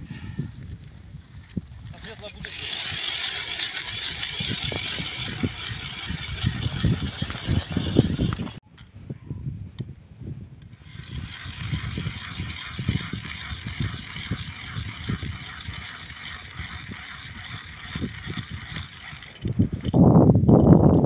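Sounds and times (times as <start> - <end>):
wind buffeting microphone: 0.0 - 21.0
ice auger grinding through ice: 1.8 - 8.6, 10.7 - 20.2.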